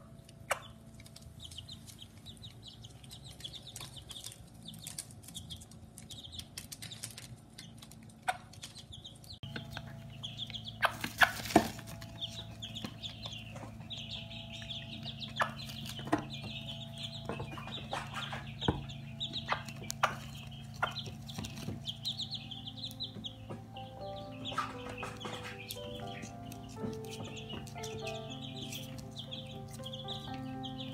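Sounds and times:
chicks peeping: 0:00.0 - 0:30.9
pecking and scratching taps: 0:15.0 - 0:30.4.

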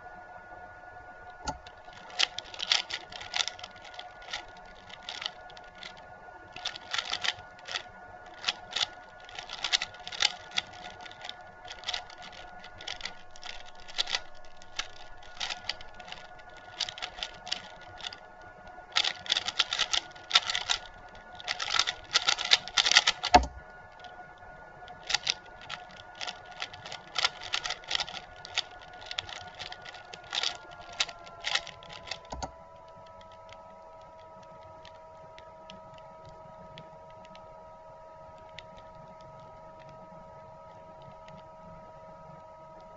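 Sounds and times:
puzzle cube clicking: 0:01.5 - 0:18.3, 0:18.9 - 0:24.1, 0:24.9 - 0:34.1.

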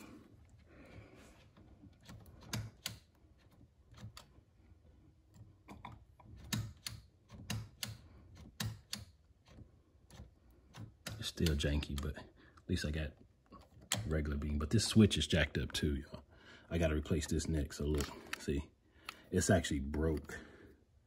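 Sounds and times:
sharp clicks and light knocks: 0:01.5 - 0:04.4, 0:05.2 - 0:15.0.

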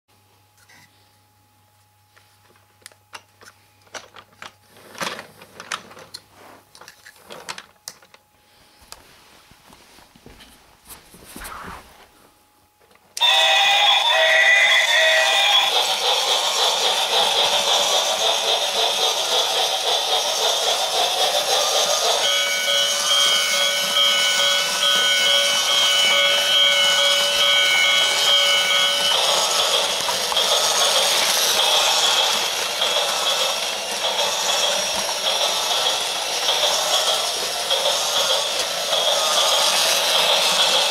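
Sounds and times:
toy train clicking and rattling: 0:13.2 - 0:40.9.

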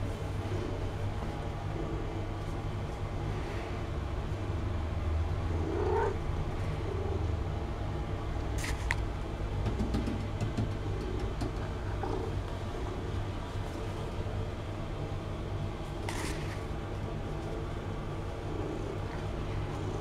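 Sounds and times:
cat purring: 0:05.4 - 0:06.2, 0:10.8 - 0:13.1.

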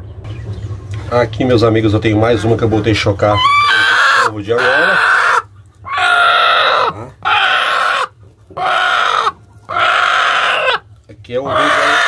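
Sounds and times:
hen protest calls: 0:02.1 - 0:10.8, 0:11.4 - 0:12.0.

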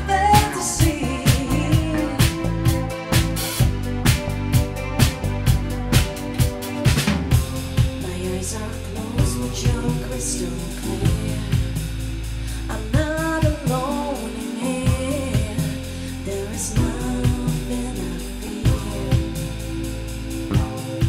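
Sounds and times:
woman singing: 0:00.0 - 0:03.0, 0:08.0 - 0:21.0
drum kit beat: 0:00.0 - 0:21.0
electric bass: 0:00.0 - 0:21.0
electric guitar: 0:00.0 - 0:21.0
synthesizer: 0:00.0 - 0:21.0.

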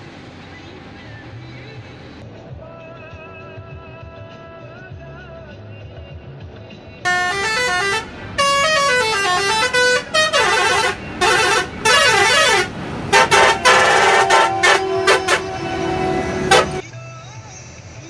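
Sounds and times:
truck musical horn playing tune: 0:07.1 - 0:16.8.

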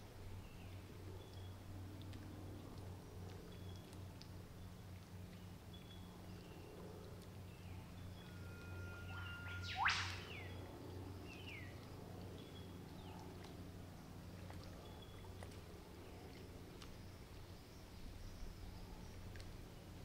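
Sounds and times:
faint low hum: 0:00.0 - 0:20.0
faint bird chirps: 0:07.5 - 0:12.7
bird whistling and whip-crack call: 0:09.0 - 0:10.7.

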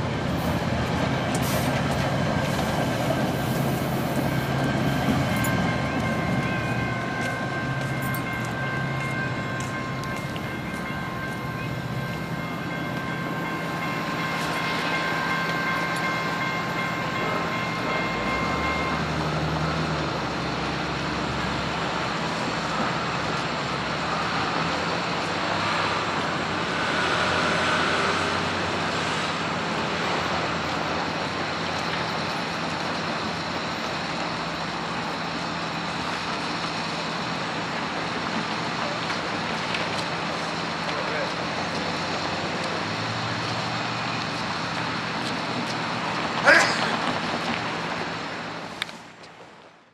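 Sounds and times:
steady high-pitched tone: 0:00.0 - 0:21.6
train rumbling past: 0:00.0 - 0:49.9.

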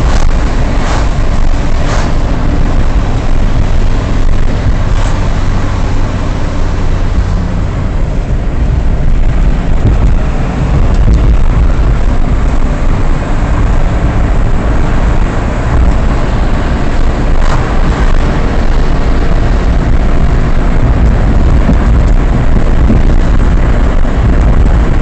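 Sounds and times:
car engine and tyre rumble: 0:00.0 - 0:25.0.

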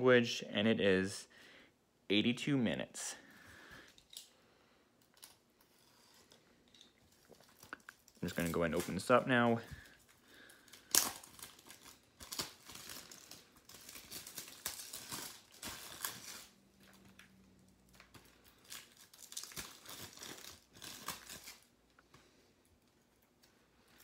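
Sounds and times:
plastic wrap crinkling and tearing: 0:05.0 - 0:24.0.

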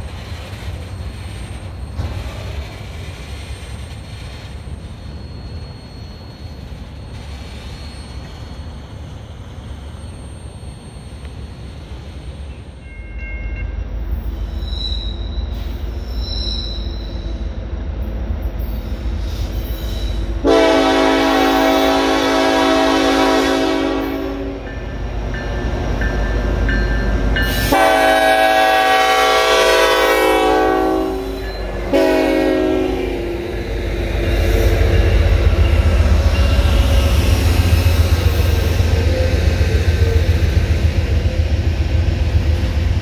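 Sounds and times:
diesel locomotives rumbling: 0:00.0 - 0:43.0
train air horn blasts: 0:20.4 - 0:24.7, 0:27.5 - 0:33.6.

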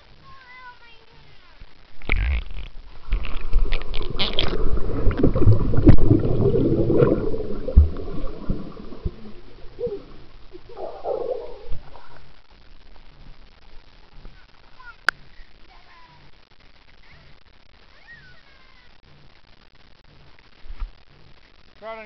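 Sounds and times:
muffled underwater bubbling: 0:01.9 - 0:13.2
dull knocks underwater: 0:02.9 - 0:11.8.

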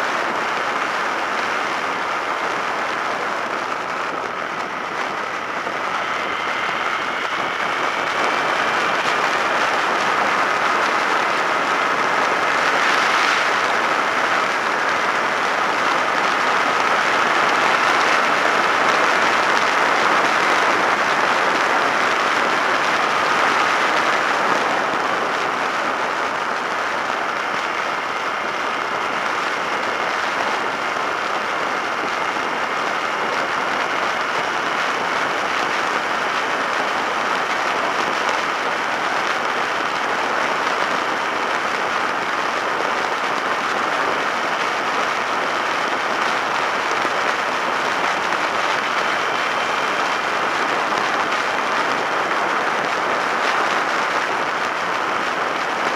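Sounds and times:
wind rushing over microphone: 0:00.0 - 0:53.3
faint thin whine: 0:00.0 - 0:55.0
road noise: 0:00.3 - 0:35.2.

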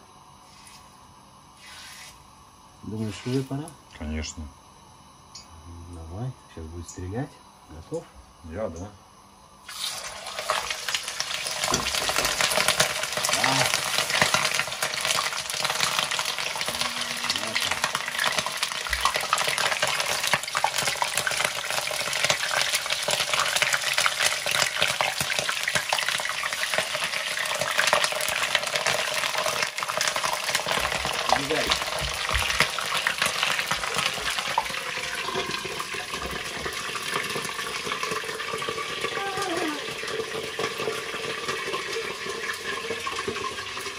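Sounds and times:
hot oil spitting and sizzling: 0:09.6 - 0:43.9.

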